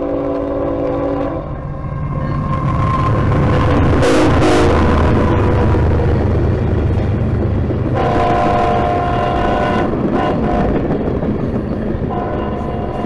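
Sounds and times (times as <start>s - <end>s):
train horn: 0.0s - 2.5s, 3.8s - 5.7s, 7.9s - 10.9s, 12.1s - 13.0s
freight train rumbling past: 0.0s - 13.0s.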